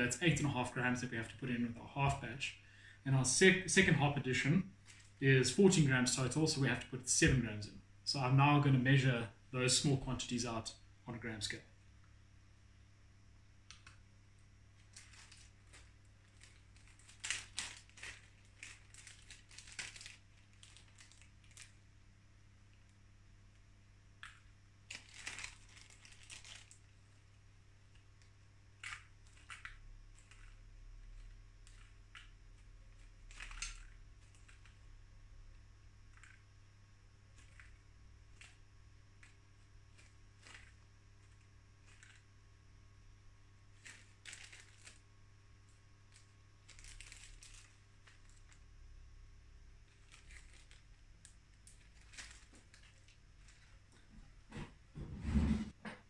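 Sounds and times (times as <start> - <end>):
faint low hum: 0.0 - 56.0
plastic packet crinkling: 4.8 - 6.2, 14.8 - 21.9, 24.2 - 28.2, 28.8 - 34.9, 36.1 - 36.4, 37.3 - 42.3, 43.6 - 45.1, 45.7 - 48.7, 49.8 - 54.0.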